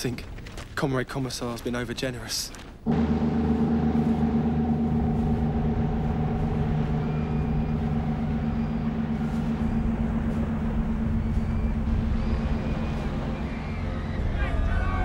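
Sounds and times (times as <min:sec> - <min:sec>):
vehicle engine humming: 0:02.9 - 0:14.4
faint high chirps: 0:04.0 - 0:14.8.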